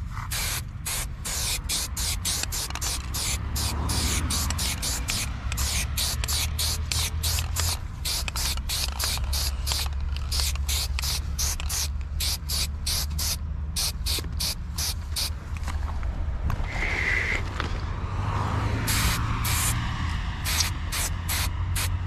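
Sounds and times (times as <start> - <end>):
spray bottle hissing squirts: 0.3 - 15.3, 20.5 - 21.9.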